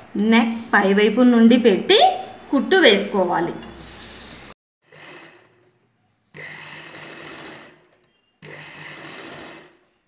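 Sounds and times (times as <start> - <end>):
sewing machine stitching: 4.8 - 10.0.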